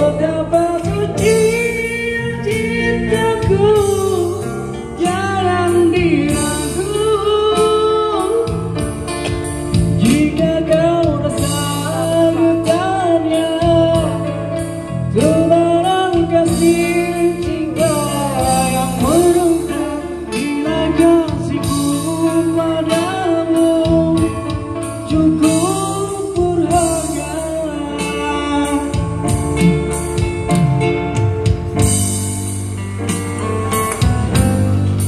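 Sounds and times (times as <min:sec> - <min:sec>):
man singing through a pa: 0:00.0 - 0:08.9, 0:09.8 - 0:29.7
electric bass: 0:00.0 - 0:35.0
keyboard: 0:00.0 - 0:35.0
steady beat: 0:28.8 - 0:35.0.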